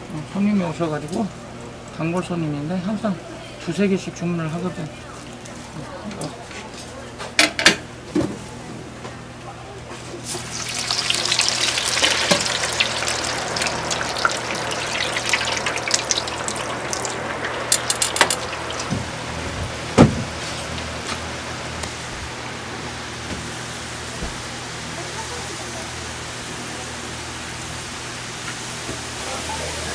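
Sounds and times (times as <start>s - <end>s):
hot oil sizzling in fryer: 10.1s - 29.9s.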